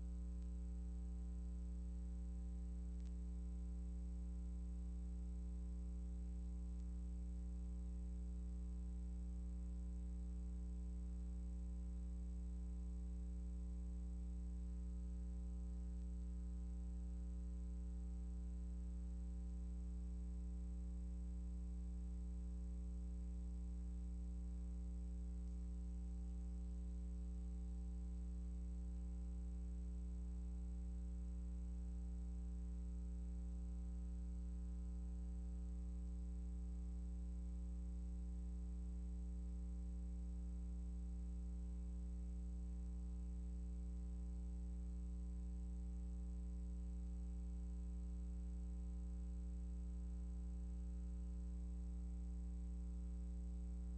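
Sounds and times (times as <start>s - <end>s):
low electrical hum: 0.0s - 53.9s.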